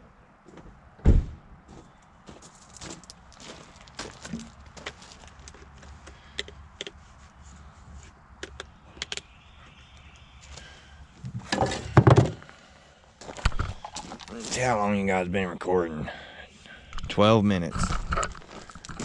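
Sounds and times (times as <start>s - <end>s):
footsteps on gravel: 1.7s - 6.2s, 13.2s - 14.8s, 17.9s - 19.0s
handling thumps and rustling: 11.2s - 12.5s.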